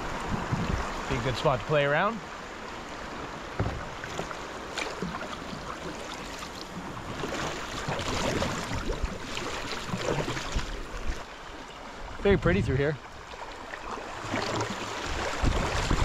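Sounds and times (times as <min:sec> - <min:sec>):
river water rushing and splashing: 0:00.0 - 0:16.0
paddle blades dipping in water: 0:03.1 - 0:11.9, 0:13.1 - 0:16.0.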